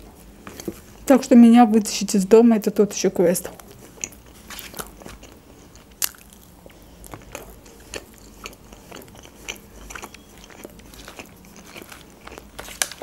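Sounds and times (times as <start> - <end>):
close-miked chewing: 3.5 - 13.0.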